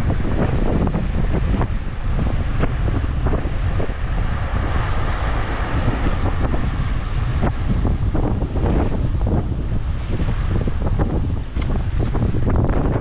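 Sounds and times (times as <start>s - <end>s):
surf washing among rocks: 0.0s - 13.0s
wind buffeting microphone: 0.0s - 13.0s.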